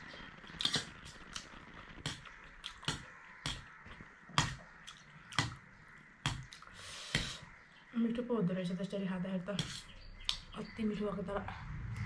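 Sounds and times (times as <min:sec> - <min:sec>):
chewing noodles: 0:00.0 - 0:05.6.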